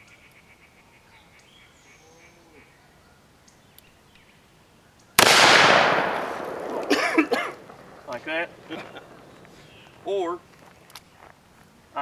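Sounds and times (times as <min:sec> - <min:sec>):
revolver gunshot echoing: 0:05.2 - 0:07.8.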